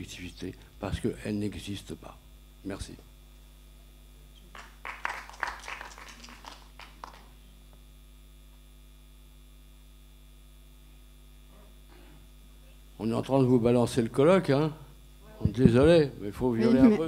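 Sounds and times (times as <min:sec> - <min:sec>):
electrical mains hum: 0:00.0 - 0:17.0
small audience applause: 0:04.4 - 0:07.4.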